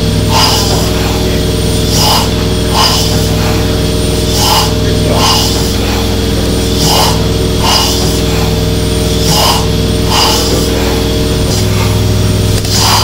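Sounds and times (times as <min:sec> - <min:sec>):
steady low hum: 0:00.0 - 0:13.0
steam engine chuffs: 0:00.0 - 0:13.0.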